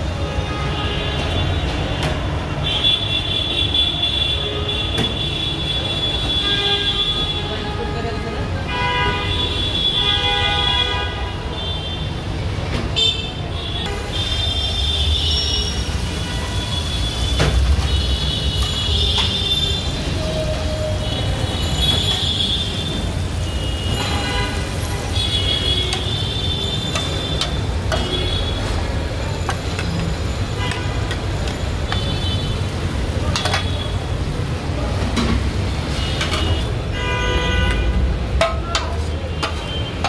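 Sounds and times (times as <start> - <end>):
street traffic rumble: 0.0 - 40.0
car horns honking: 21.1 - 29.4, 30.2 - 32.8, 35.8 - 40.0.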